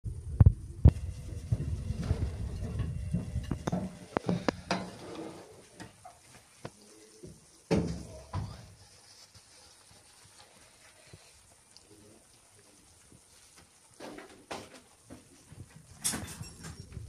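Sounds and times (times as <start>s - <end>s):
low handling rumble: 0.0s - 4.7s
baking pan scraping oven rack: 1.3s - 6.0s.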